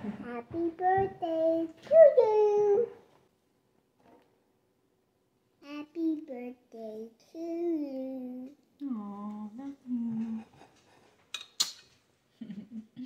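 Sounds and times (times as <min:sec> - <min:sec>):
person humming: 0:08.0 - 0:10.5
sharp click: 0:11.4 - 0:11.9.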